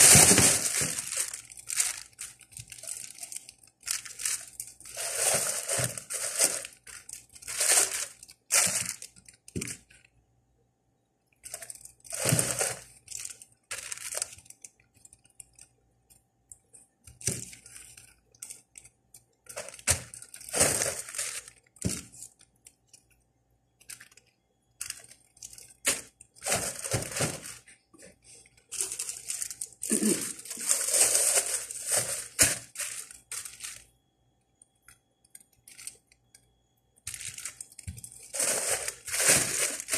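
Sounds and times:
plastic bags crinkling: 0.0 - 10.1, 11.4 - 14.7, 19.5 - 22.6, 24.8 - 33.9, 35.6 - 36.0, 37.0 - 39.9.

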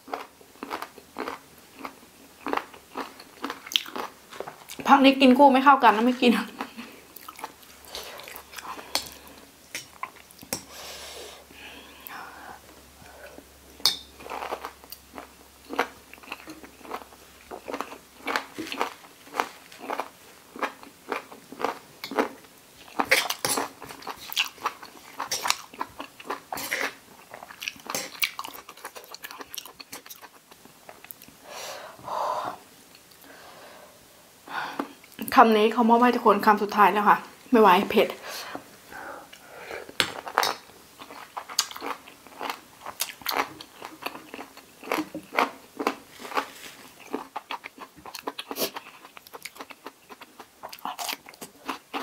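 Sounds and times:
crunchy chewing: 0.0 - 4.8, 14.2 - 31.3, 40.1 - 52.0.

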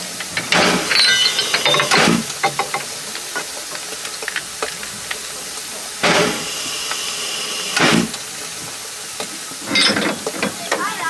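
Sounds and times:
rush of steam with whistling tone: 0.0 - 11.0
steam locomotive hissing: 0.0 - 11.0
faint metallic clinks: 0.9 - 2.0.

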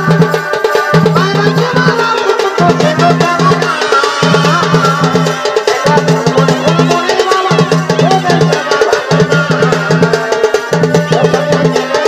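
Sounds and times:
rapid drum strokes: 0.0 - 12.0
sustained melody line: 1.2 - 7.6.

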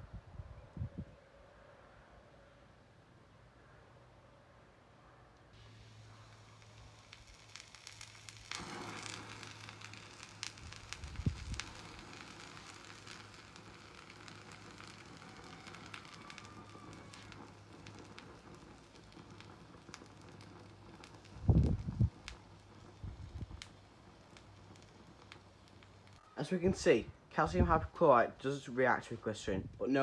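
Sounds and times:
chemical mixture flaring up: 5.6 - 26.2
fire hissing and crackling: 5.6 - 30.0.

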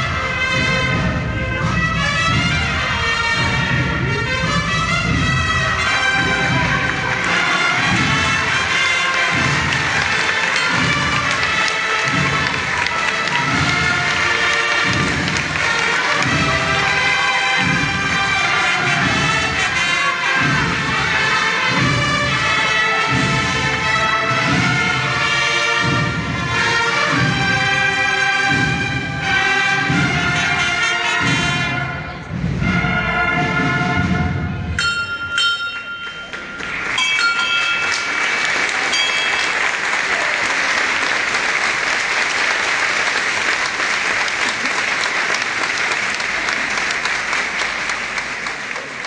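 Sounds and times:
brass band playing a march: 0.0 - 34.8, 36.4 - 49.0
heavy drumbeat: 0.0 - 34.8
crowd applause: 2.6 - 31.3, 36.0 - 49.0.

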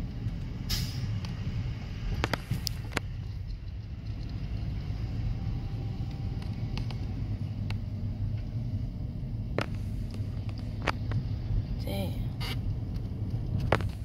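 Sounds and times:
car and traffic rumble: 0.0 - 14.0.

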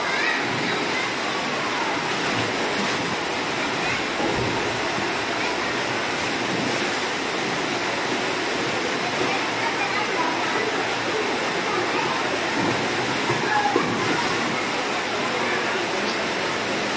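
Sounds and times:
water rushing down a slide: 0.0 - 16.9
water splashing into pool: 0.0 - 16.9.

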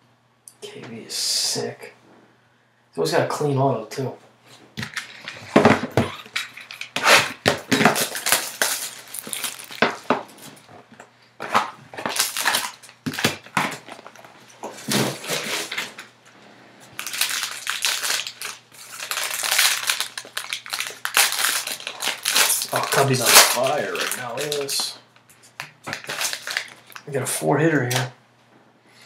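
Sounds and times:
plastic wrapper crinkling: 4.8 - 16.1, 16.9 - 27.1.

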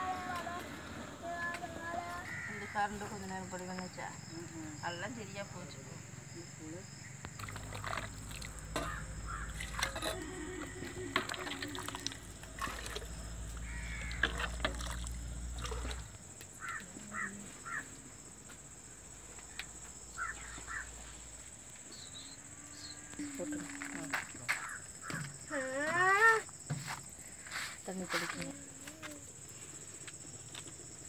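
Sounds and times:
crows cawing: 2.1 - 3.0, 8.4 - 11.0, 13.6 - 14.5, 16.6 - 18.0, 20.2 - 21.0, 24.5 - 25.4.

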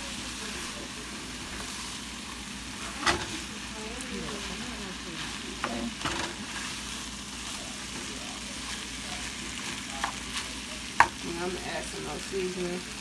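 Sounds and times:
food sizzling in a skillet: 0.0 - 13.0
spatula scraping and knocking pan: 2.9 - 3.4, 4.2 - 6.9.

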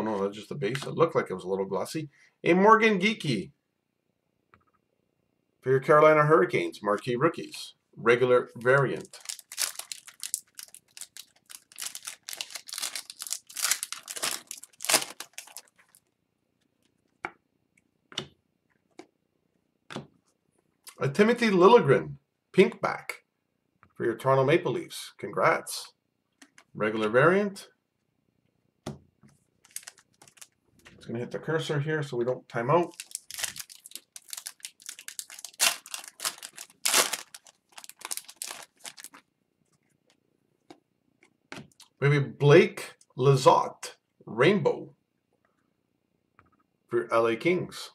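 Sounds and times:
foil wrapper tearing and crinkling: 9.0 - 16.0, 29.6 - 30.6, 32.9 - 39.2.

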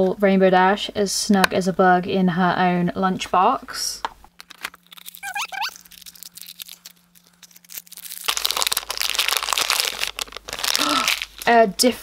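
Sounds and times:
foil wrapper crinkling: 4.4 - 11.6.

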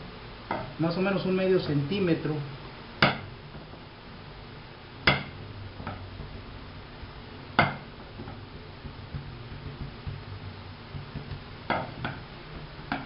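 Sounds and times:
rolling pin knocking on table: 3.0 - 3.8, 5.0 - 13.0.

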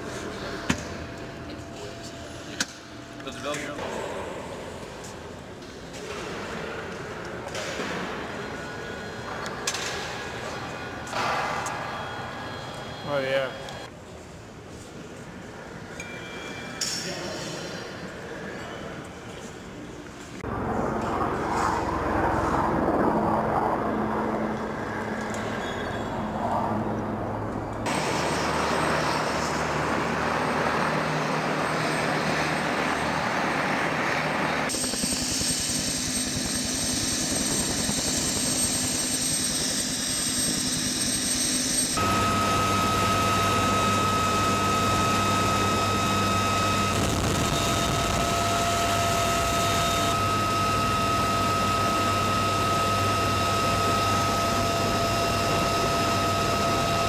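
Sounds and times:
helicopter engines running: 20.4 - 57.0.

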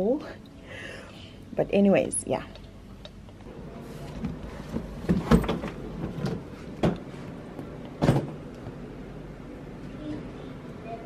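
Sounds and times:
suitcase knocks and thumps: 4.3 - 7.0, 8.0 - 8.4.

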